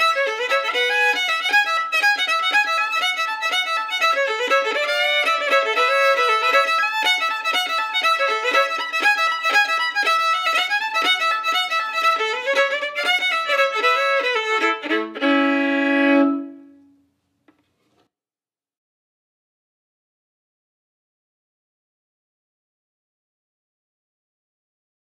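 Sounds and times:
fast folk fiddle tune: 0.0s - 16.8s.

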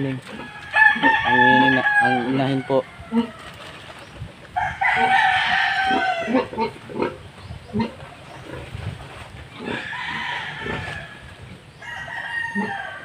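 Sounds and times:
rooster crowing: 0.3s - 3.6s, 4.6s - 6.4s, 9.7s - 13.0s
pig grunting: 5.0s - 8.8s, 9.5s - 10.9s.

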